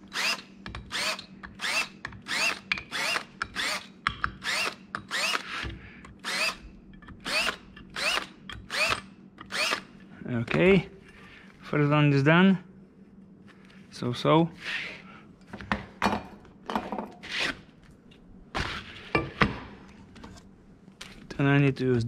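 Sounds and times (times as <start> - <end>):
cordless drill whining in pulses: 0.0 - 6.6, 7.2 - 9.9.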